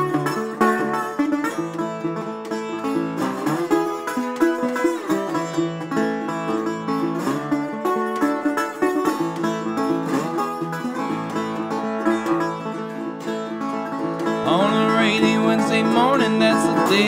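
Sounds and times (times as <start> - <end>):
resonator guitar picked solo: 0.0 - 17.0.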